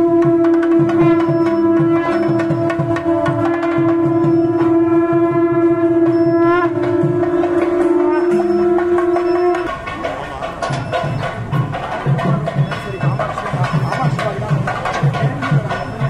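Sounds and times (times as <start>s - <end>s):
conch shell blown: 0.0s - 9.8s
rhythmic drumming: 0.0s - 16.0s.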